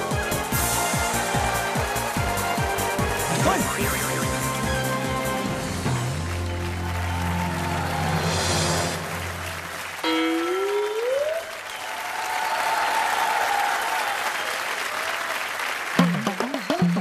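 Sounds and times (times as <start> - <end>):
music with bouncing beat: 0.0 - 6.2
studio audience applauding: 0.0 - 17.0.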